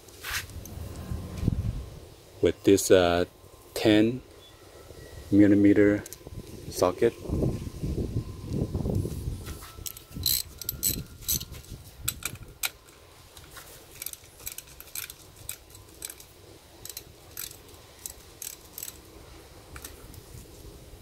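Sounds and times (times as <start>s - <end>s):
ratchet wrench clicking: 9.8s - 11.5s, 14.0s - 19.1s
sharp metal clicks: 9.8s - 13.0s, 13.9s - 19.1s.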